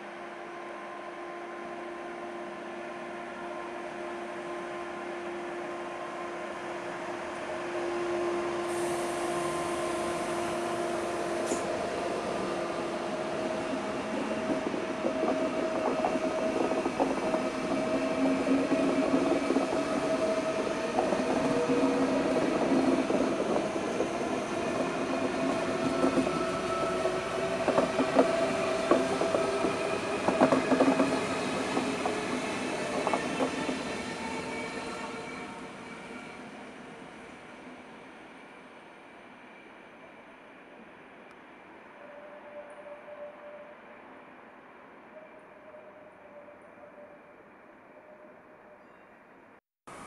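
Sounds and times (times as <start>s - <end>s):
train rolling past humming: 0.0s - 49.0s
wheels clicking over rail joints: 13.5s - 34.0s.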